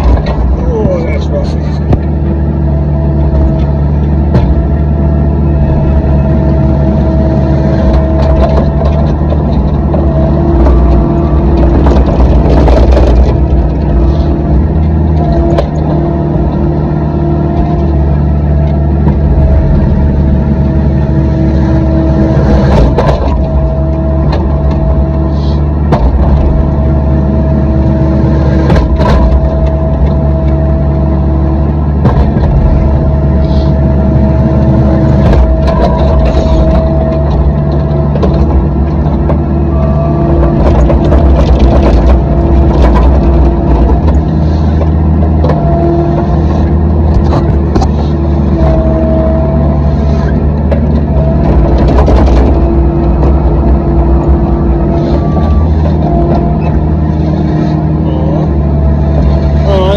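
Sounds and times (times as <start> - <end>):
diesel engine running: 0.0 - 59.9
sharp knocks: 28.5 - 30.2.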